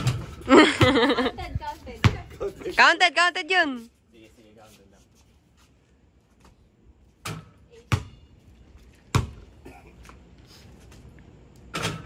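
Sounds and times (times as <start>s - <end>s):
ball bouncing on concrete: 0.0s - 2.5s, 7.2s - 8.3s, 8.9s - 9.5s
basketball striking hoop: 7.2s - 8.2s, 9.1s - 9.4s.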